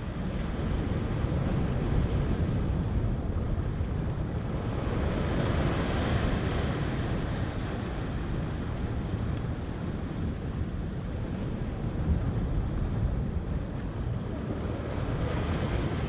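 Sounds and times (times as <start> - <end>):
wind rumbling on microphone: 0.0 - 16.0
surf washing against rocks: 4.4 - 16.0.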